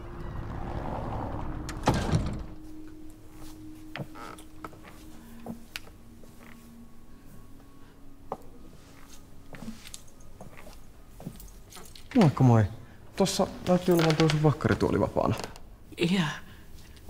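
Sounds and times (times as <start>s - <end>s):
door swinging shut with thud: 1.3s - 2.7s.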